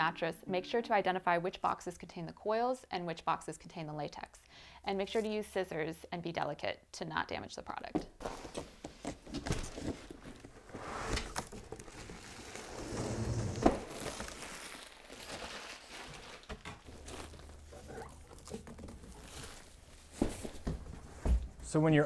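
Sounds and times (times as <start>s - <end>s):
cardboard scraping and rustling: 8.2s - 21.5s.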